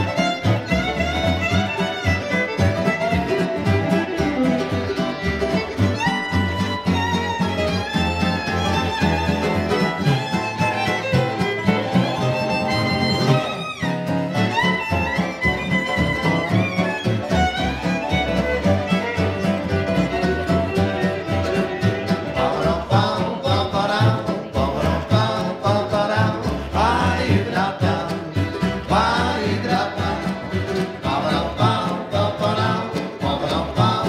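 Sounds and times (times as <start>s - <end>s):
fiddle solo: 0.0s - 34.0s
guitar and bass accompaniment: 0.0s - 34.0s.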